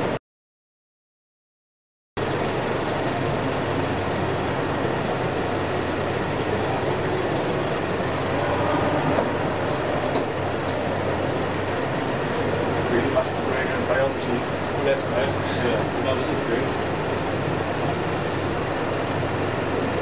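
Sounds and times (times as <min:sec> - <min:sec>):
noisy crowd roar: 0:05.0 - 0:20.0.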